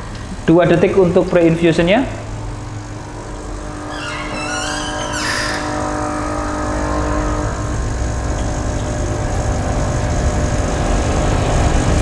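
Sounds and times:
espresso machine pump running: 0:02.1 - 0:12.0.

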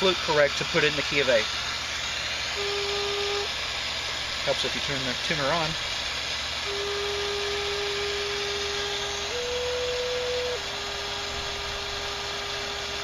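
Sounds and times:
steady low hum: 0:00.0 - 0:13.0
wooden flute playing long note: 0:02.6 - 0:03.6, 0:06.6 - 0:13.0.

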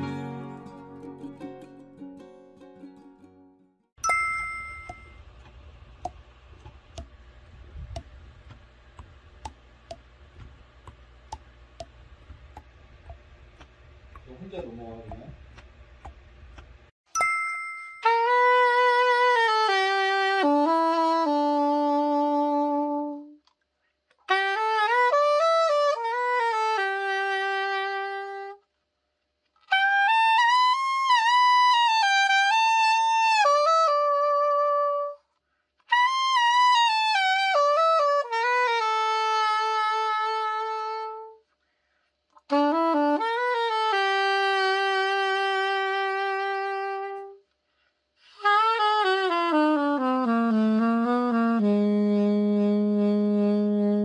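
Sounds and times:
soprano saxophone phrases: 0:18.2 - 0:23.4, 0:24.3 - 0:28.6, 0:29.7 - 0:35.2, 0:35.9 - 0:41.4, 0:42.5 - 0:47.4, 0:48.3 - 0:54.0.

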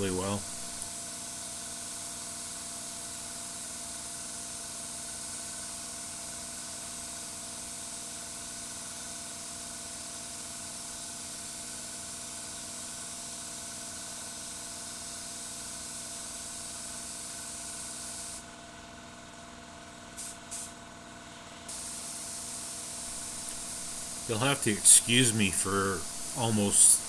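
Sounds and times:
spray gun hissing: 0:21.7 - 0:24.3
steady hum: 0:22.9 - 0:27.0.

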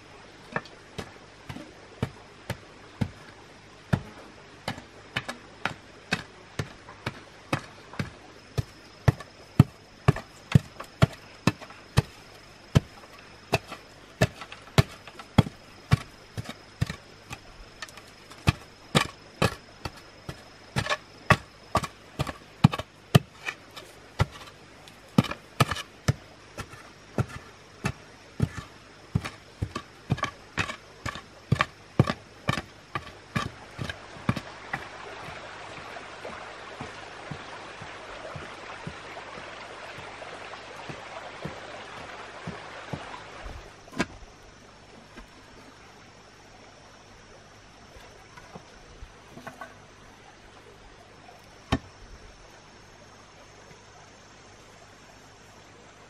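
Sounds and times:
wooden pole knocking into soil: 0:03.9 - 0:40.1, 0:40.8 - 0:44.2.

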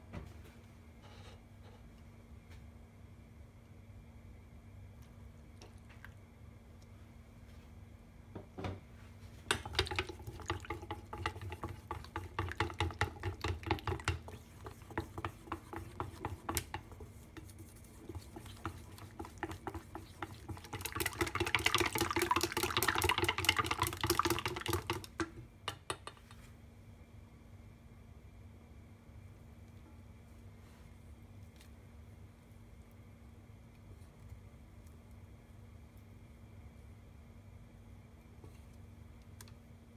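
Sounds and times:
utensil scraping metal bowl: 0:09.6 - 0:21.4.

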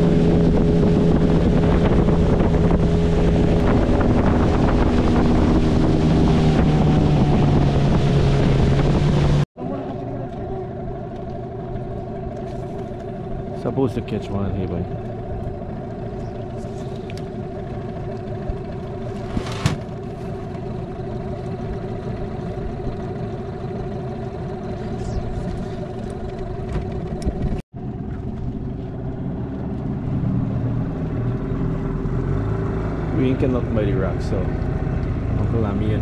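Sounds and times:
outboard motor running: 0:00.0 - 0:36.0.

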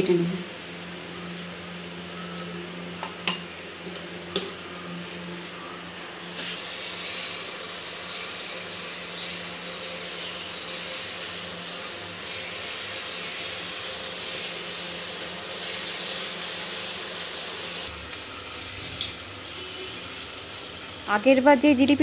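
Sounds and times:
batter sizzling in hot oil: 0:06.4 - 0:22.0.

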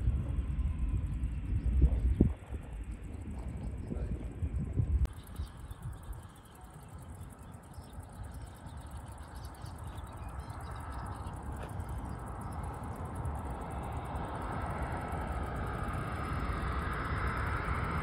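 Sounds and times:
distant jet airliner approaching: 0:00.0 - 0:18.0.

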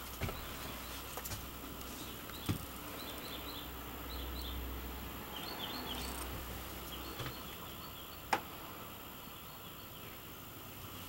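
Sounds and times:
small birds chirping: 0:00.0 - 0:11.0
steady background noise: 0:00.0 - 0:11.0.

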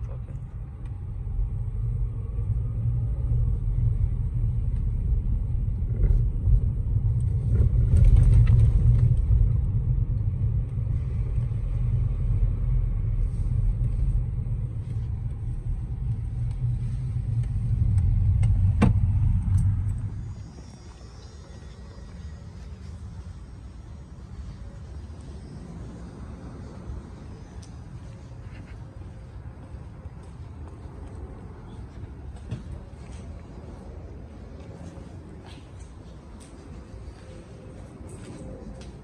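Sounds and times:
car driving rumble: 0:00.0 - 0:39.0.

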